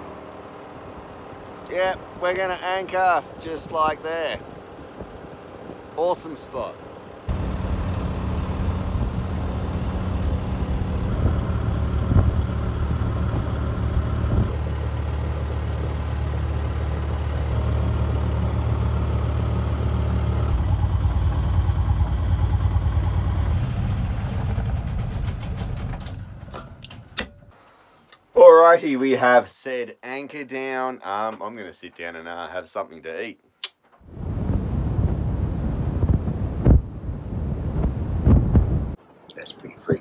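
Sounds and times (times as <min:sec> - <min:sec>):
marine diesel engine running: 0:00.0 - 0:27.5.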